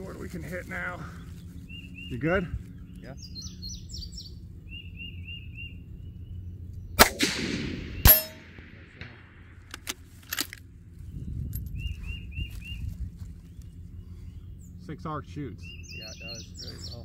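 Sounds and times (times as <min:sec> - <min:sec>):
bird chirping: 0:01.0 - 0:07.0, 0:11.0 - 0:17.0
rifle shots with echo: 0:07.0 - 0:10.5
metallic clicks of rifle bolt: 0:09.6 - 0:10.6.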